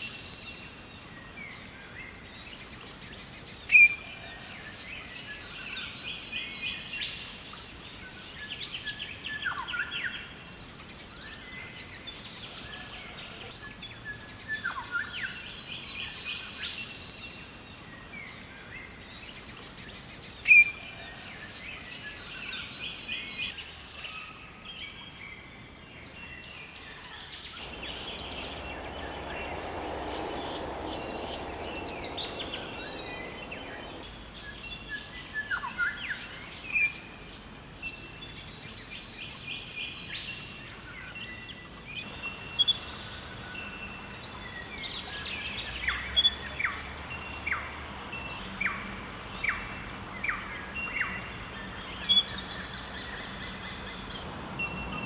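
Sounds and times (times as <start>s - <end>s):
soft rushing noise: 27.5s - 34.8s
wild birds chirping: 27.5s - 35.1s.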